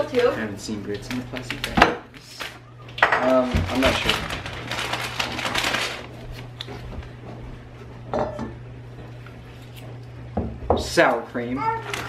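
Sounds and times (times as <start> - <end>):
plastic bags rustling: 0.0 - 7.1.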